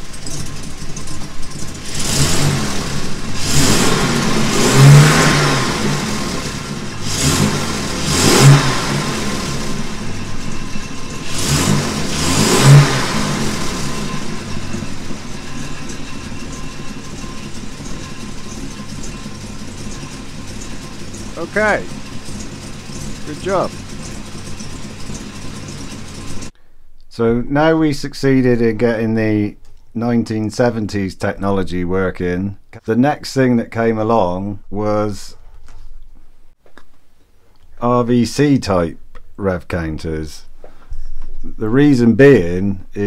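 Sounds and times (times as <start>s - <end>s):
car engine revving and idling: 0.0s - 26.6s.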